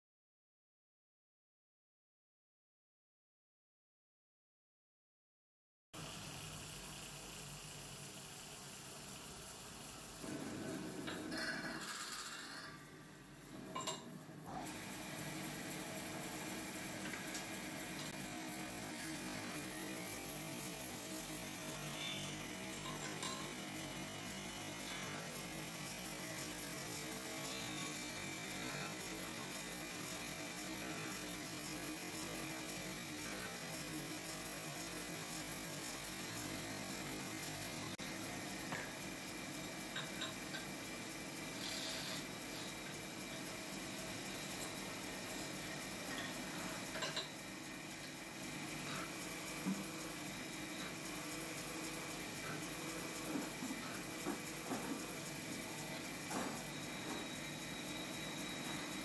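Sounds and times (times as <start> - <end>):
lathe humming: 14.7 - 59.0.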